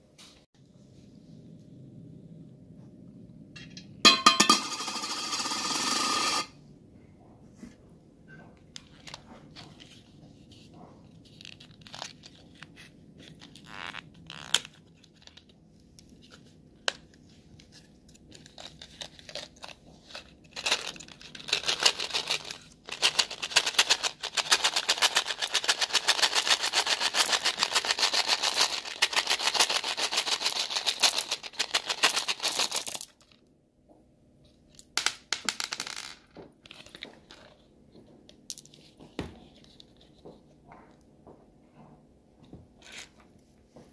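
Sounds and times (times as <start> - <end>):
candies rattling and clattering: 18.2 - 33.4.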